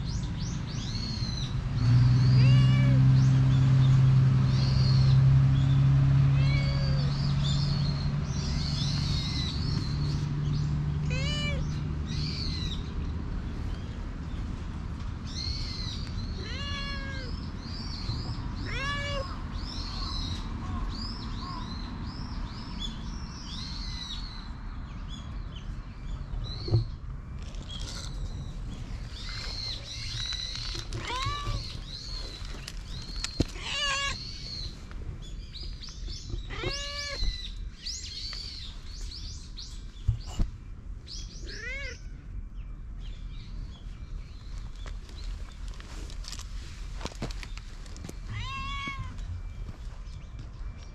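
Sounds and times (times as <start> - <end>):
small birds chirping: 0.0 - 50.9
cat meowing: 2.4 - 3.0, 6.4 - 7.1, 11.0 - 11.7, 16.4 - 17.4, 18.6 - 19.4, 31.0 - 31.8, 33.6 - 34.2, 36.5 - 37.3, 41.4 - 42.0, 48.3 - 49.3.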